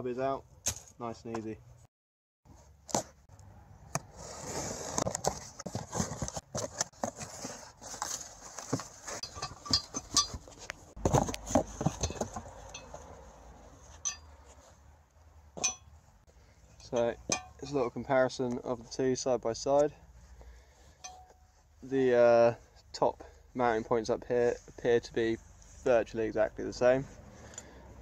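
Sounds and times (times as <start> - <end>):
metal parts clinking: 9.2 - 10.6.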